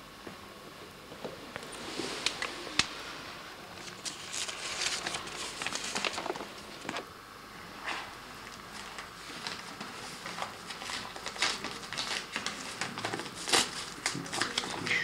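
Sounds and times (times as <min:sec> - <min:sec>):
paper crackling and rustling: 0:03.7 - 0:07.1, 0:07.9 - 0:15.0.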